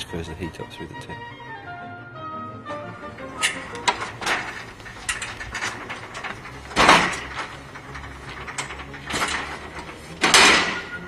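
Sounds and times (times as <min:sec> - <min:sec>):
metal clanks and rattles: 0:02.7 - 0:11.0.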